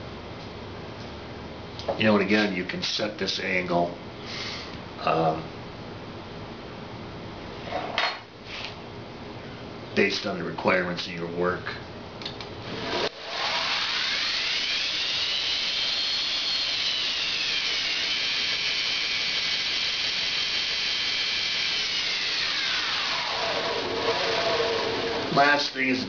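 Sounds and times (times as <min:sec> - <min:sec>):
belt grinder motor whining: 0:12.7 - 0:25.8.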